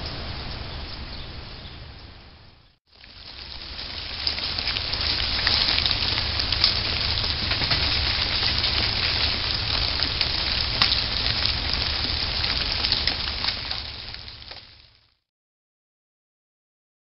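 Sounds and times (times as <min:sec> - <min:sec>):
ice ticking in tree branches: 0:03.0 - 0:15.1
low rumble: 0:03.3 - 0:15.0.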